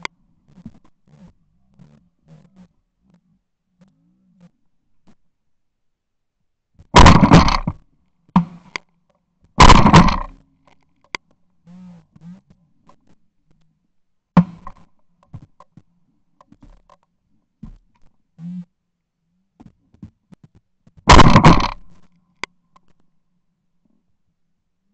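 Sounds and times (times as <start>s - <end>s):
sharp short bang: 7.0s - 7.8s, 9.6s - 10.4s, 21.1s - 22.0s
shotgun shots: 7.0s - 7.8s, 9.6s - 10.3s, 21.1s - 22.0s.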